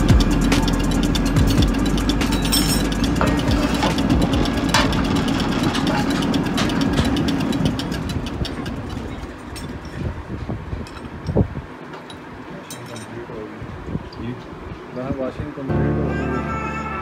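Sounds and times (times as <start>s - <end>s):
pump test bench humming and ticking: 0.0s - 10.0s.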